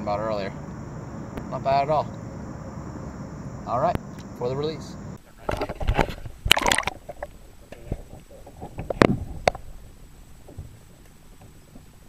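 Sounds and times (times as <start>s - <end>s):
water sloshing and splashing: 6.0s - 7.3s.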